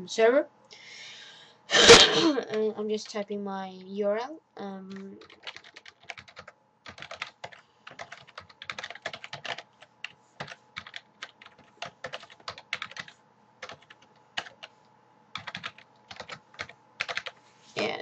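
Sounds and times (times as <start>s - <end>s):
keyboard typing clicks: 4.9s - 9.6s, 15.4s - 17.4s.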